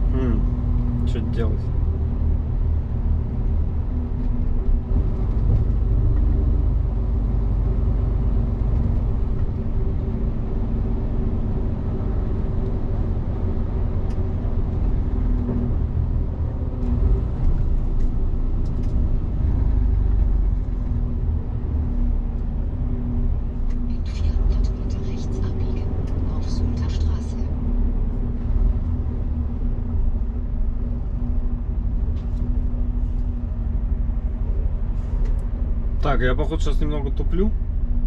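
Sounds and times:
road noise: 0.0 - 38.0
truck diesel engine rumble: 0.0 - 38.0.

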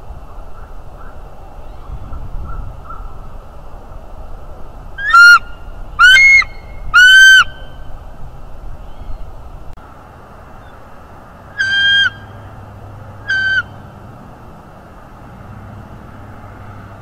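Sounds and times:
eagle calling high notes: 5.0 - 7.8, 11.5 - 12.6, 13.2 - 13.9.

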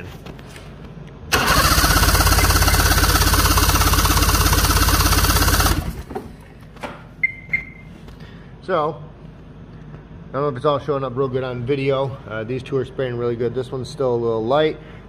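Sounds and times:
snowmobile engine cranking: 1.3 - 6.1.

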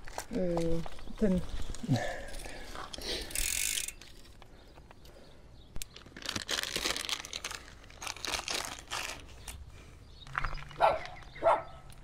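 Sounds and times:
hands handling bicycle chain: 1.6 - 4.9.

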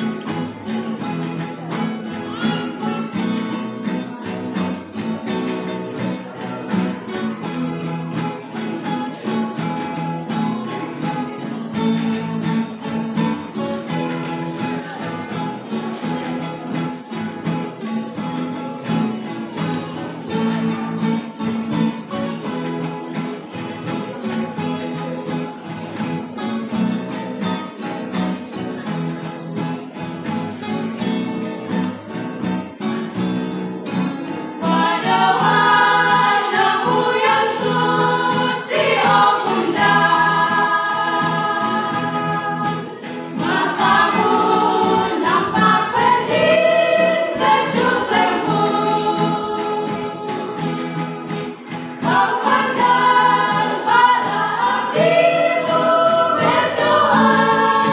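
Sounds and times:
guitar strumming chords: 0.0 - 57.9
women's vocal group singing: 34.3 - 57.9.

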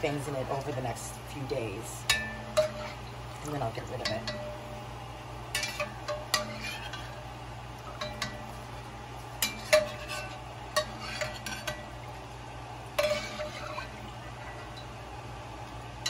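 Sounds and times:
steady low hum: 0.0 - 16.0
metal spoon clinking on pot: 2.0 - 3.1, 5.5 - 7.1, 8.0 - 8.4, 9.4 - 11.9, 13.0 - 13.9.

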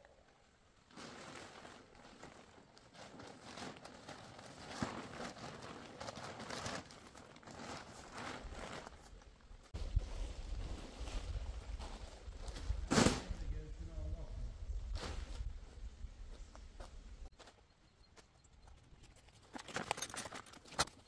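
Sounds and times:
rustling and crunching: 0.8 - 13.5, 18.6 - 21.0.

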